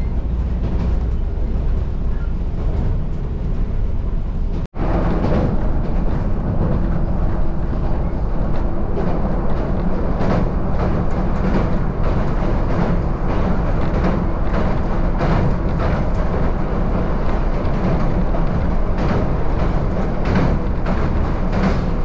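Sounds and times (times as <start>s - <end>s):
train wheels rumbling on rail: 0.0s - 22.0s
knocks of train on bridge: 4.6s - 22.0s.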